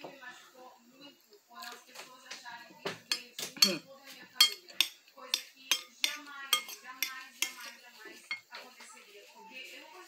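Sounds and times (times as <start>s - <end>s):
metal spoon clinking on glass plate: 3.1s - 3.8s, 4.4s - 8.5s.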